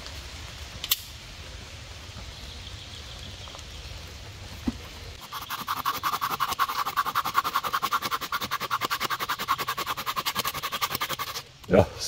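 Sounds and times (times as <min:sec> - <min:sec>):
hand saw rasping through wood: 0:05.2 - 0:11.4.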